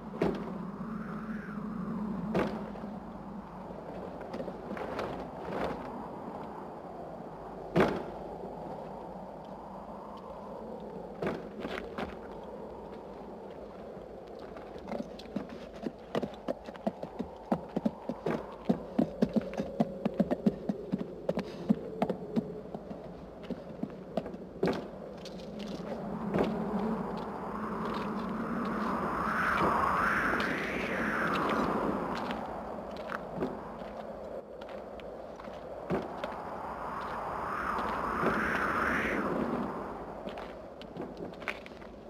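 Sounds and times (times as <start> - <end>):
footsteps on cobblestones: 14.3 - 27.3.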